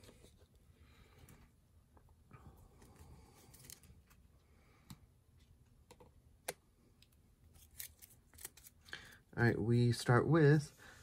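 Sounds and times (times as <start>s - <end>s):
cards rustling: 2.7s - 4.2s, 7.5s - 9.2s.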